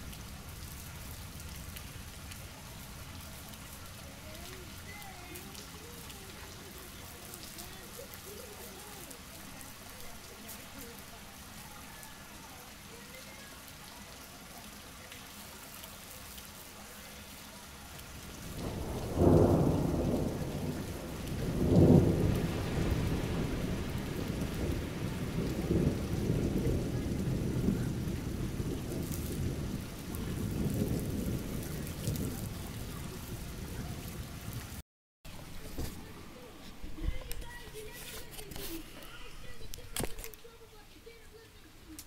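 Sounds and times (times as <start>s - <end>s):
steady rain falling: 0.0s - 42.0s
thunder rumbling: 18.0s - 34.8s.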